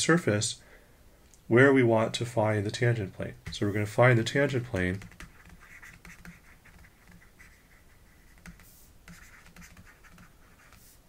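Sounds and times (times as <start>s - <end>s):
pen scratching on tablet: 4.5s - 11.0s.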